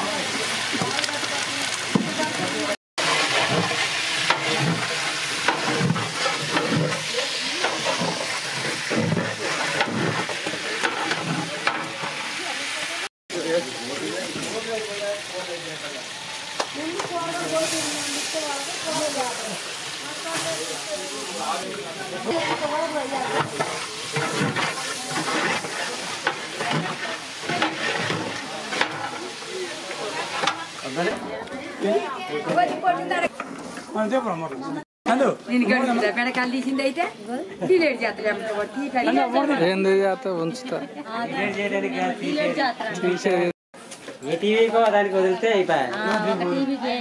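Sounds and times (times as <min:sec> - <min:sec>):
okra sizzling in a pot: 0:00.0 - 0:47.0
metal spatula scraping a pot: 0:03.0 - 0:12.5, 0:21.7 - 0:31.2.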